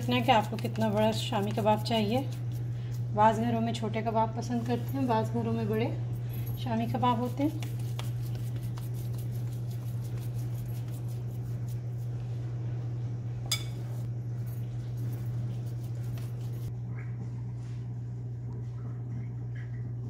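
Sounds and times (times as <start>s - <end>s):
hands shaping meat patties: 0.0s - 3.1s, 6.9s - 12.2s
steady low hum: 0.0s - 20.0s.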